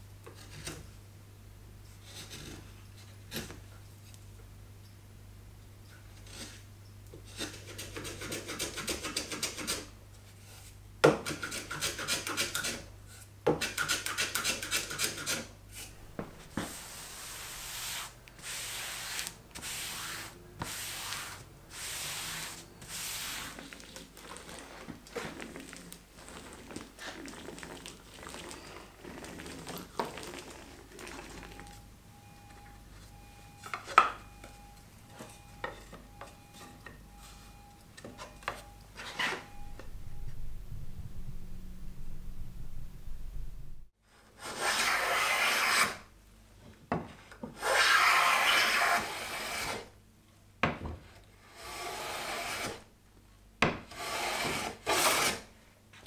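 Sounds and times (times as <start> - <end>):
hand tool scraping wood: 7.2 - 9.9, 11.2 - 12.8, 13.6 - 25.4, 44.4 - 46.0, 47.6 - 49.8, 51.6 - 52.8, 53.9 - 55.5
hand smoothing fabric: 15.8 - 23.8.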